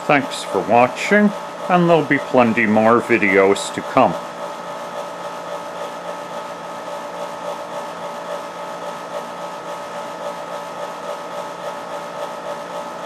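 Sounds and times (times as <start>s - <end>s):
blower humming and whirring: 0.0s - 13.0s.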